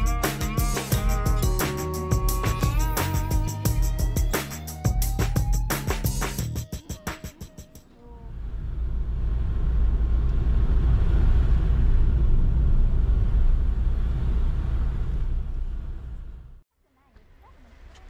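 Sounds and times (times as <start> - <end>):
car tyres and engine rumble: 7.9 - 18.0.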